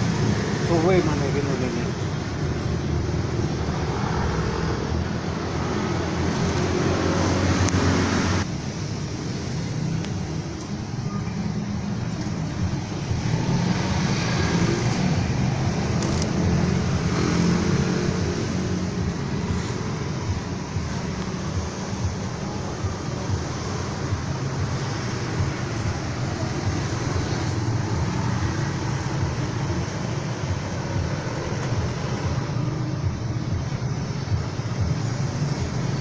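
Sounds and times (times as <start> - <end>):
road traffic rumble: 0.0 - 36.0.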